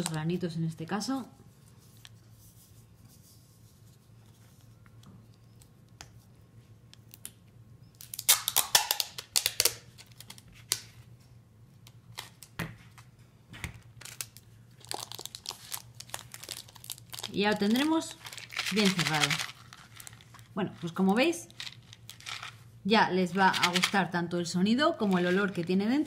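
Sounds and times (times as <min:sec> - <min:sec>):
packing tape ripping off roll: 0:08.0 - 0:10.9, 0:14.0 - 0:20.4.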